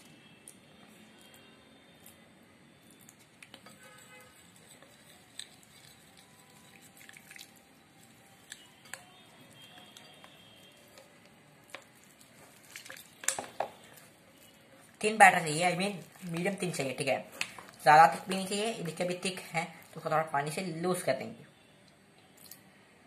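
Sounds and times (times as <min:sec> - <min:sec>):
spoon stirring wet batter: 0:02.8 - 0:21.1.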